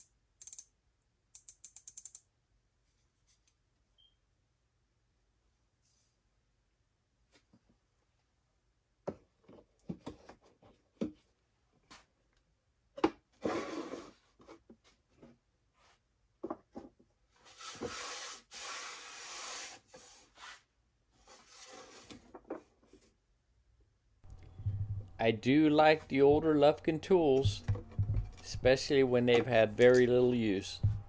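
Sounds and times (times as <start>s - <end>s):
wooden boxes clicking and knocking: 24.3s - 28.7s.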